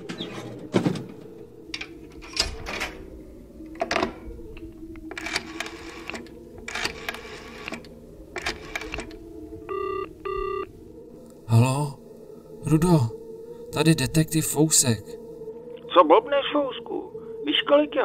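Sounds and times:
telephone ringing tone: 9.7s - 10.8s.

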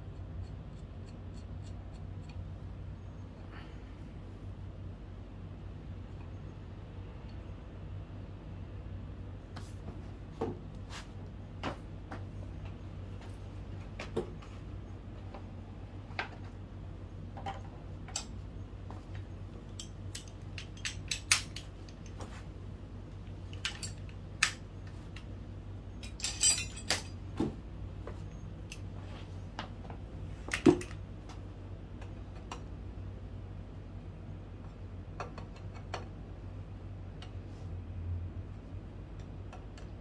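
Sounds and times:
low steady hum: 0.0s - 40.0s
metal parts rattling: 19.7s - 22.1s, 23.5s - 25.2s, 25.9s - 27.2s
metal tools clicking and clinking: 19.7s - 22.2s, 23.5s - 25.3s, 25.9s - 27.2s.

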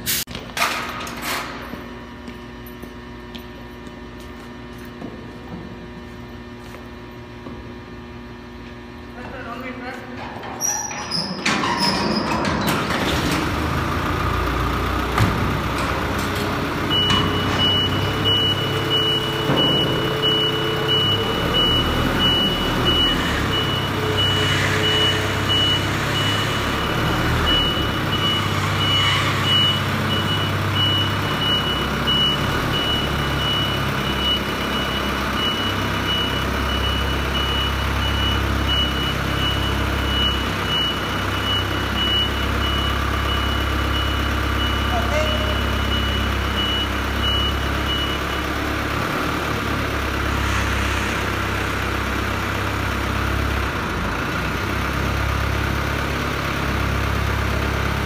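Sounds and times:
reversing alarm beeping: 13.0s - 49.0s
truck engine humming: 13.0s - 58.0s.

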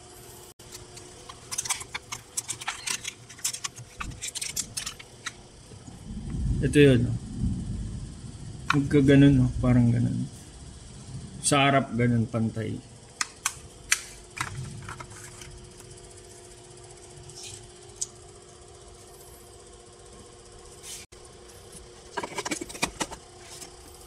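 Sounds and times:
faint steady hum: 0.0s - 24.0s
plastic clicks and rattles: 0.6s - 5.4s, 22.2s - 23.2s.

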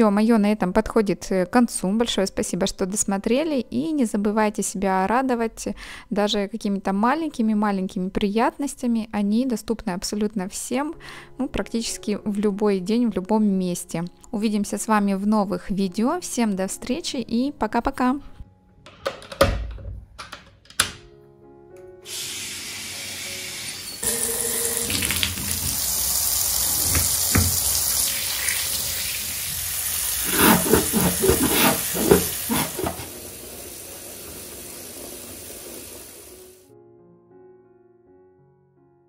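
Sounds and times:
soft piano music: 10.0s - 18.9s, 20.8s - 29.9s, 36.4s - 39.0s
tap water running into bathtub: 22.1s - 36.6s.

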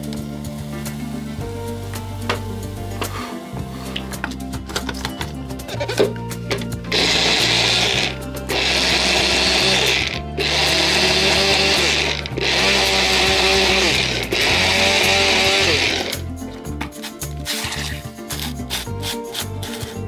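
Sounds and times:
blender motor whirring: 6.9s - 16.3s.

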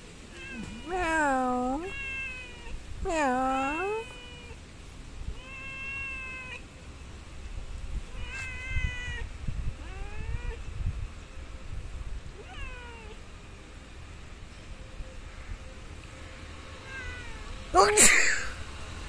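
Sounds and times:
cat meowing: 0.3s - 4.6s, 5.3s - 6.6s, 8.1s - 10.7s, 12.4s - 13.2s, 16.8s - 18.6s.

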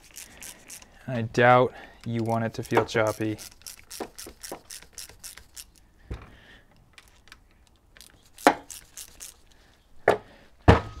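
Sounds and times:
dull thump: 10.1s - 11.0s.

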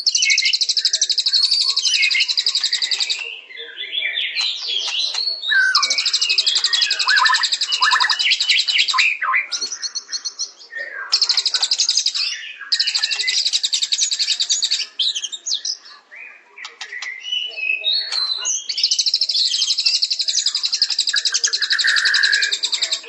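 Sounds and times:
bird chirps and whistles: 0.0s - 3.2s, 4.3s - 9.5s
songbird trills: 0.0s - 23.0s.

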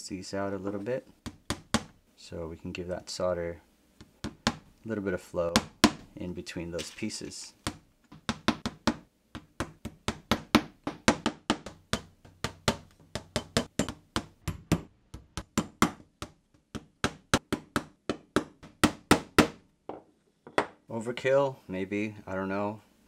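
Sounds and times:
small hammer tapping nails into wood: 7.7s - 14.8s.

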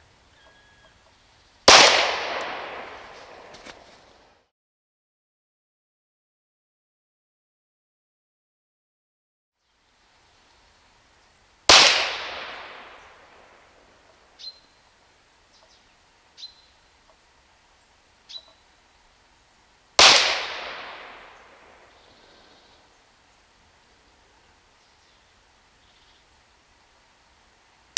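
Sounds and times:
air pistol shots: 1.7s - 3.6s, 11.7s - 13.1s, 20.0s - 21.6s.

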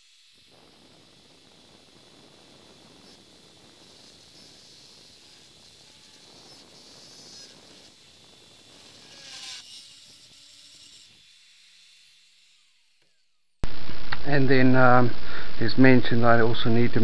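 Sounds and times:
electric drill boring metal: 0.0s - 13.6s.

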